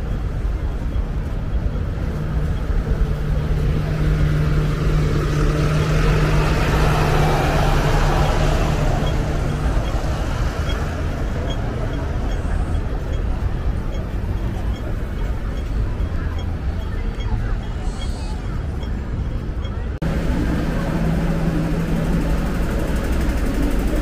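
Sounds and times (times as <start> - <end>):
bus engine droning: 0.0 - 24.0.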